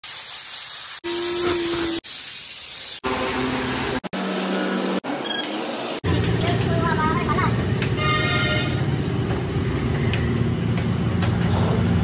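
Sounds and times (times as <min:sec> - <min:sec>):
spray guns hissing: 0:00.0 - 0:03.0.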